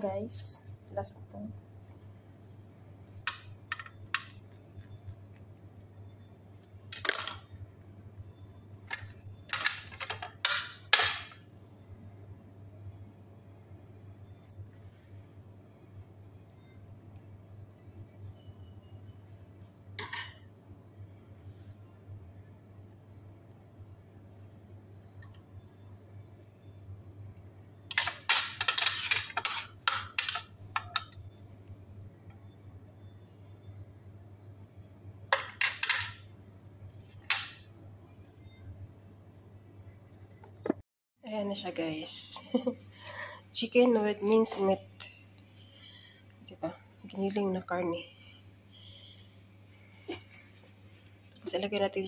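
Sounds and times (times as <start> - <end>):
kitchen scraping and rustling: 27.9 - 31.1.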